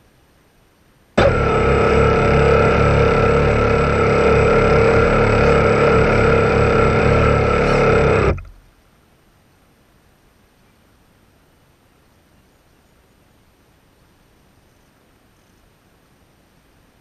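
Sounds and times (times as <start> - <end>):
rc boat motor running: 1.2 - 8.6.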